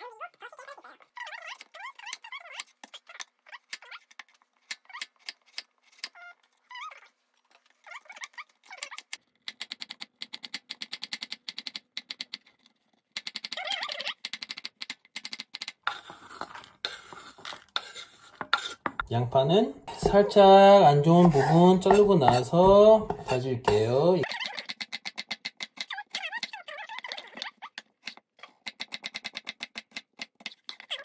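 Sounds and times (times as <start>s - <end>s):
carrot scraped into metal pot: 15.9s - 19.0s, 19.8s - 24.0s
knife chopping on wooden board: 19.9s - 24.0s.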